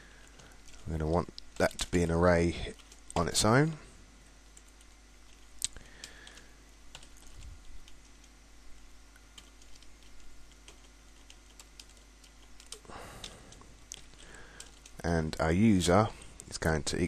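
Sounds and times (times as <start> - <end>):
keyboard typing: 2.7 - 3.3, 4.4 - 8.3, 9.3 - 15.0.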